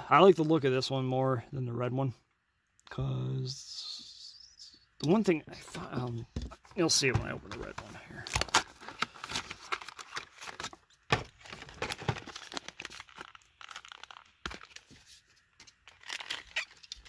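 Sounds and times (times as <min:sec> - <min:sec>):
plastic packaging crinkling: 0:08.2 - 0:17.0.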